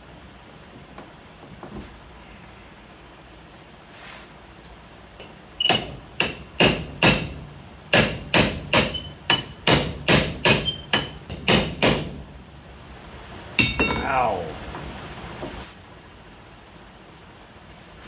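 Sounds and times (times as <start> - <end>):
hammer striking steel: 5.7 - 12.2, 13.6 - 14.4.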